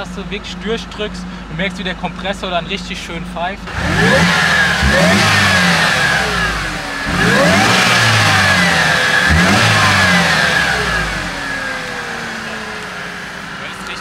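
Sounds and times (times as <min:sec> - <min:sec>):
car engine revving: 0:00.0 - 0:14.0
supercharger whine: 0:00.0 - 0:14.0.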